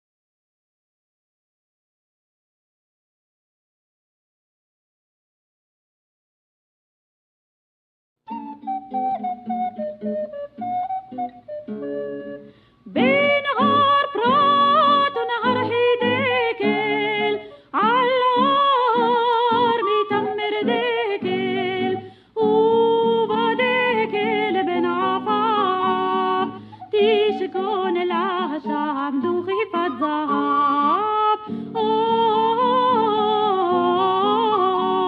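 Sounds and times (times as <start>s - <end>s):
instrumental accompaniment: 8.3s - 17.6s
woman singing: 12.9s - 35.0s.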